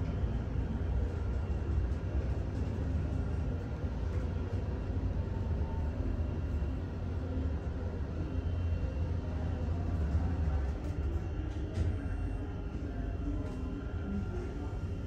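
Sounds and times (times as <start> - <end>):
elevator low rumble: 0.0 - 15.0.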